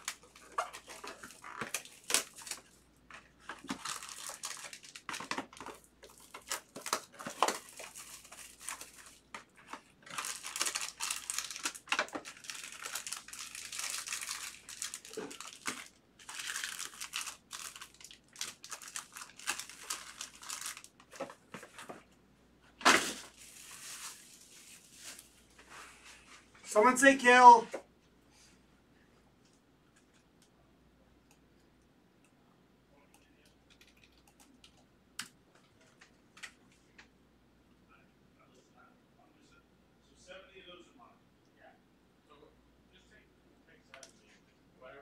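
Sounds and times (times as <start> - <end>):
shrink wrap tearing and crinkling: 0.0 - 21.2, 22.9 - 25.3
foil card packs rustling: 0.0 - 22.0, 22.9 - 25.4.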